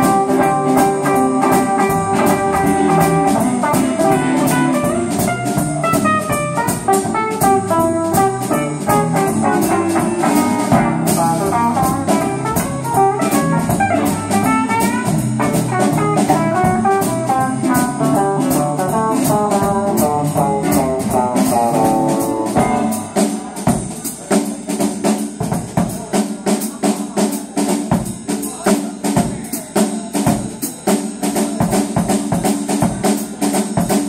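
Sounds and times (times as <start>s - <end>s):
electric guitar: 0.0s - 23.4s
bass notes: 0.0s - 23.5s
drum kit: 0.0s - 34.0s.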